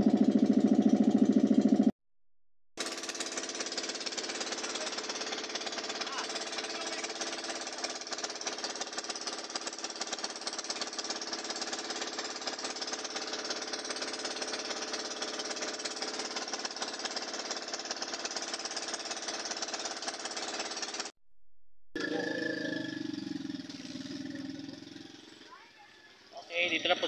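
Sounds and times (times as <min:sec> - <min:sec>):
boat engine chugging: 0:00.0 - 0:01.9, 0:03.0 - 0:20.7.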